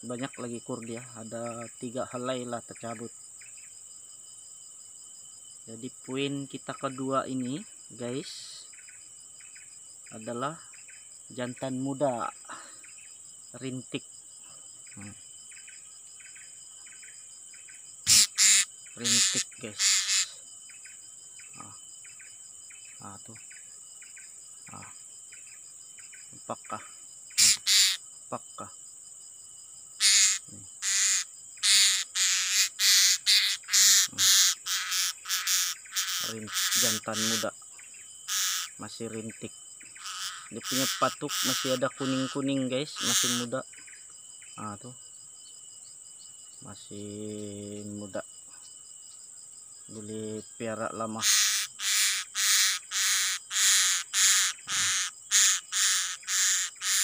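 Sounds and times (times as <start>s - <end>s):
insects buzzing: 0.0s - 57.0s
parrot screeching: 18.1s - 20.3s, 27.4s - 28.0s, 30.0s - 37.4s, 38.3s - 38.7s, 40.0s - 42.4s, 43.0s - 43.4s, 51.2s - 57.0s.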